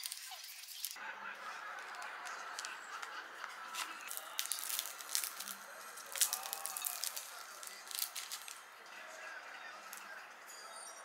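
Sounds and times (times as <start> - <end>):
paper wrapper crinkling: 0.0 - 1.0, 1.6 - 8.6
pastry crust crackling: 0.0 - 10.3.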